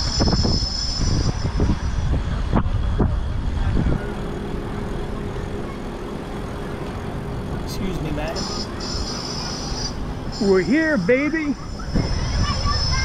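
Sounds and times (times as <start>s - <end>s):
wind buffeting microphone: 0.0s - 7.9s, 11.1s - 13.0s.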